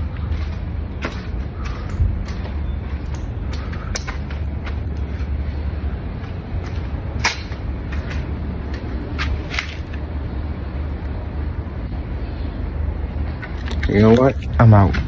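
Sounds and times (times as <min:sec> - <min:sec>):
sharp clicks: 0:01.1 - 0:04.4.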